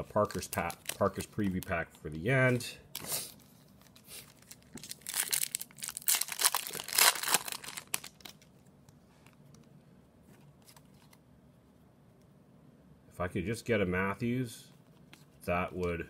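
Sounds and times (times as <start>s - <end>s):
foil wrapper crinkling and tearing: 0.2s - 1.8s, 3.8s - 8.5s.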